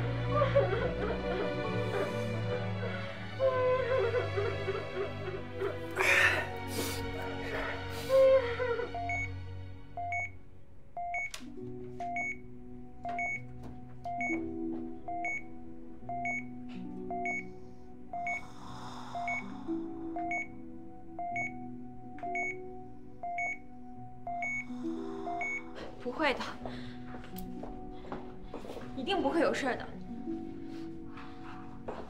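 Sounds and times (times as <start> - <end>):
soft music of low chords: 0.0 - 32.0
patient monitor beeping: 9.0 - 9.4, 10.0 - 10.4, 11.0 - 18.4, 19.2 - 19.5, 20.1 - 25.8.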